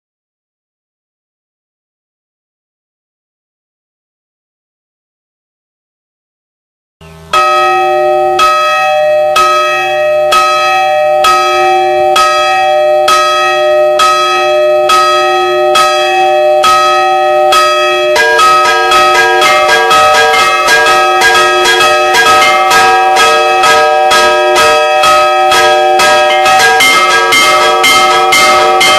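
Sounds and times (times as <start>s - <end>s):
church bell striking: 7.0s - 28.9s
higher bells ringing quickly: 7.0s - 28.9s.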